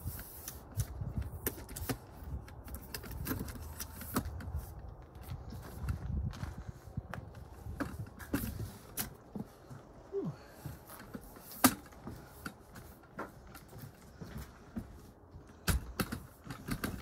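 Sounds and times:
footsteps on wooden floorboards: 0:05.0 - 0:15.6.

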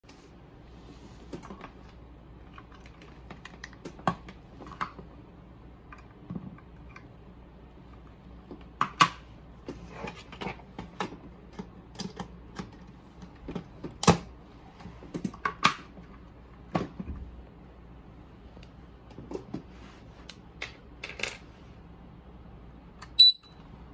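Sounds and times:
plastic parts clicking and knocking: 0:02.4 - 0:05.1, 0:07.9 - 0:14.3, 0:20.6 - 0:21.4.

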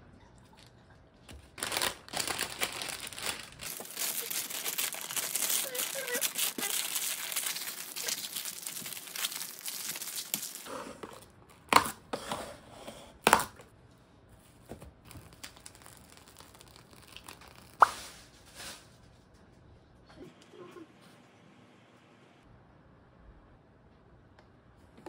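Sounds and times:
stiff paper crinkling: 0:01.3 - 0:10.7, 0:15.1 - 0:17.8
cling film tearing: 0:01.6 - 0:10.7.

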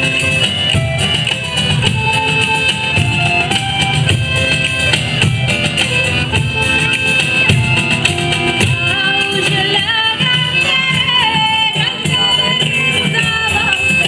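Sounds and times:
strummed strings: 0:00.0 - 0:14.0
woman singing: 0:08.7 - 0:14.0.

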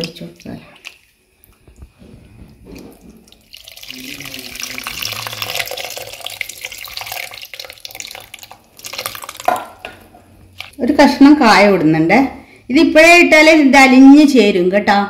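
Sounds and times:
liquid pouring and splashing: 0:00.0 - 0:10.8.

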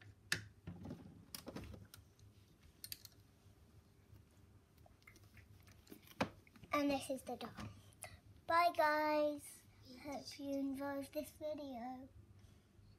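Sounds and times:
plastic doll accessories clicking: 0:02.8 - 0:03.2.

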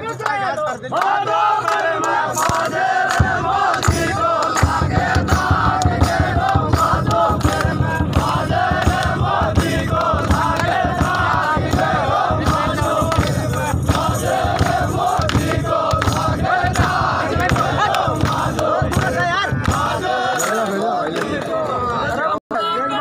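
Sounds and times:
crowd singing and shouting: 0:00.0 - 0:23.0
fast dense drumming: 0:02.5 - 0:20.2.

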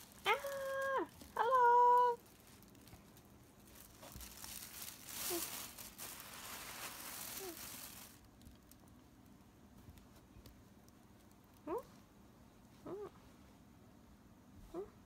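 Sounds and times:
tissue paper crinkling: 0:00.0 - 0:09.0.

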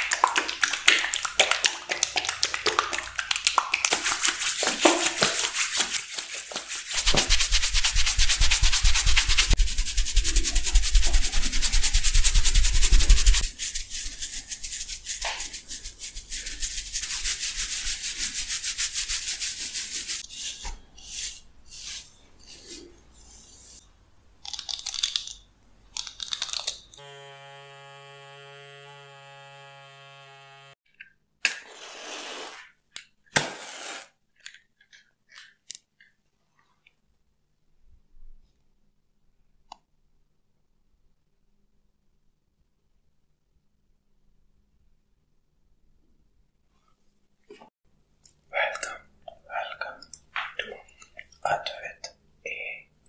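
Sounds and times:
fingers rubbing through hair: 0:03.8 - 0:20.3.

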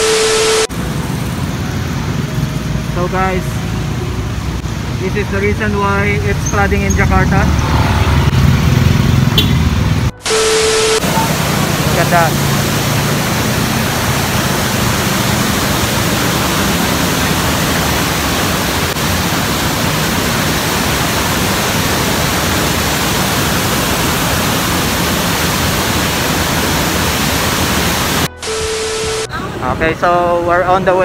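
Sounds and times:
roar of rushing water: 0:11.0 - 0:28.3.

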